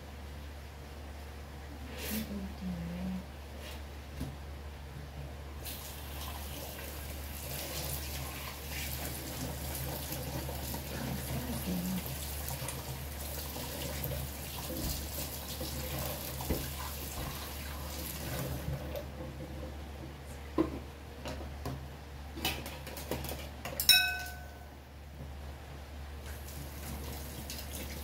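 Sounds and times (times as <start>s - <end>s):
low steady hum: 0.0s - 28.0s
running water hiss: 5.6s - 18.7s.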